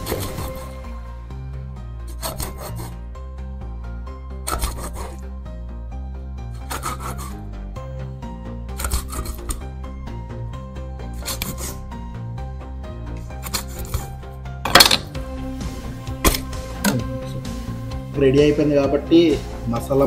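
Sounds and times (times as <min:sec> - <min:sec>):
knife rasping through fish skin: 0:00.0 - 0:00.9, 0:02.1 - 0:03.0, 0:04.4 - 0:05.2, 0:06.5 - 0:07.4, 0:08.7 - 0:09.7, 0:11.1 - 0:11.9, 0:13.2 - 0:14.2
background music: 0:00.0 - 0:20.0.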